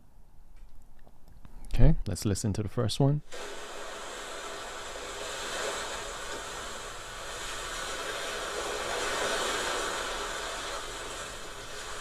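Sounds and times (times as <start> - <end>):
ocean waves crashing: 3.3 - 12.0.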